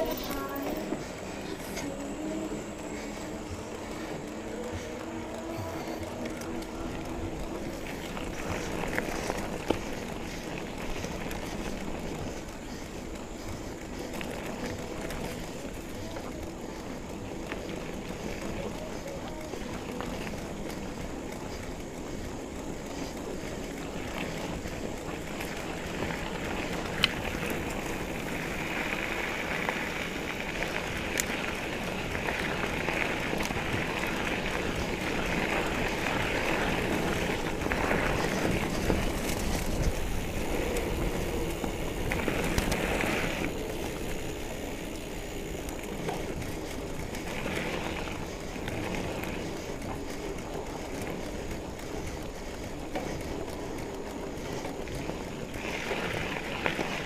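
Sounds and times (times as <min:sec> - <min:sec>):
bike rattling: 0:00.0 - 0:57.0
bike tyres crunching over gravel: 0:00.0 - 0:57.0.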